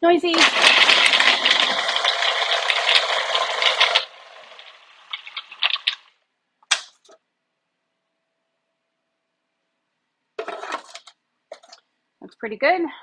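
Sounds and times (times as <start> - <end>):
food processor grinding: 0.3 - 6.0.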